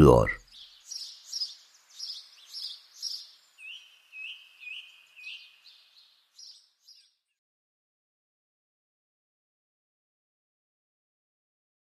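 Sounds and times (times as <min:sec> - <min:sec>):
small birds chirping: 0:00.1 - 0:07.4.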